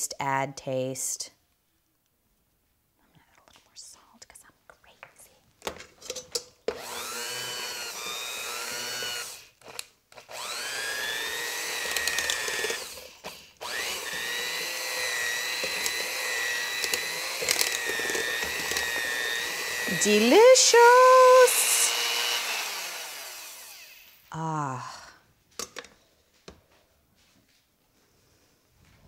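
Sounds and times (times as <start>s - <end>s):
electric mixer motor whining: 6.7s - 24.2s.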